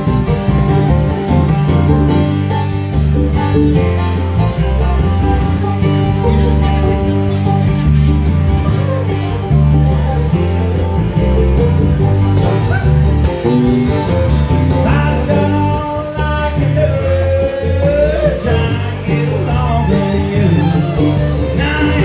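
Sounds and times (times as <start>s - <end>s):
bluegrass band playing: 0.0s - 22.0s
man singing: 14.8s - 22.0s.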